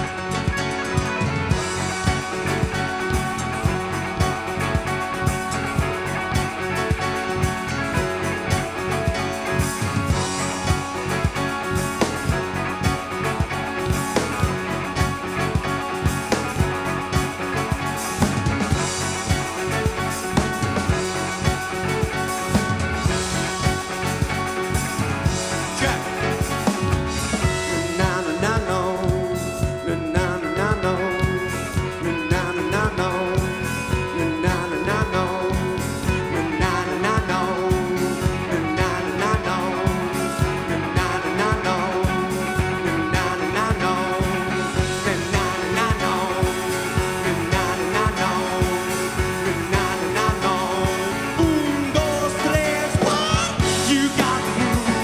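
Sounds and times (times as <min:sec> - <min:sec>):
drum kit beat: 0:00.0 - 0:55.0
electric guitar: 0:00.0 - 0:55.0
man singing: 0:25.2 - 0:55.0.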